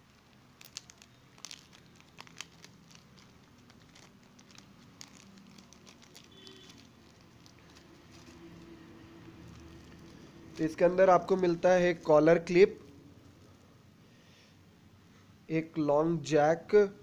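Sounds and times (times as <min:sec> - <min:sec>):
plastic bag crinkling: 0:00.0 - 0:12.1.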